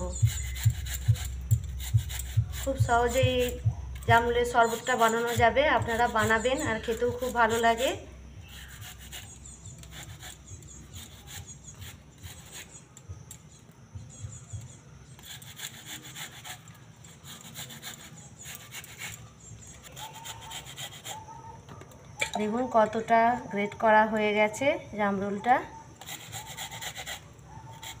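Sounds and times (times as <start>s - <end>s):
fruit rasping on metal grater: 0.0s - 13.0s, 15.1s - 21.4s, 26.0s - 28.0s.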